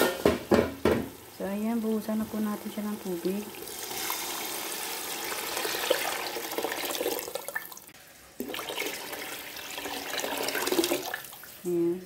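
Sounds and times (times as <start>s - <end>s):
water pouring into a pot: 1.2s - 11.7s.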